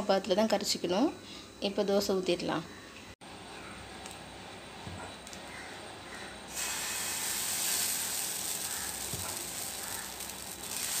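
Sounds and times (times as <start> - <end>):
batter sizzling on hot griddle: 6.5 - 11.0.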